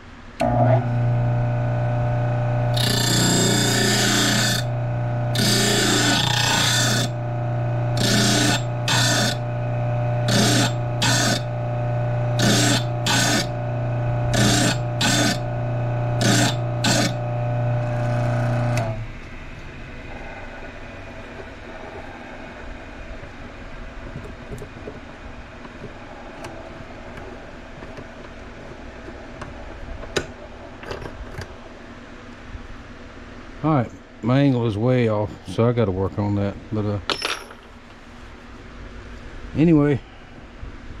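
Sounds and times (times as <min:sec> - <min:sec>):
drill bit grinding on wheel: 0:00.4 - 0:19.0
bench grinder motor humming: 0:00.4 - 0:19.2.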